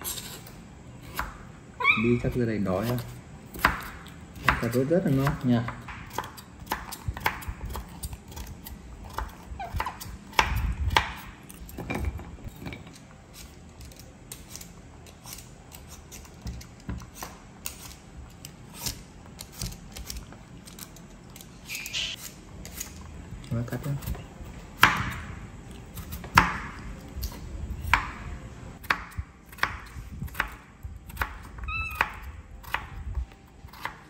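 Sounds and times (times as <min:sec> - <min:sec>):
vegetable peeler scraping potato: 0:00.0 - 0:01.2.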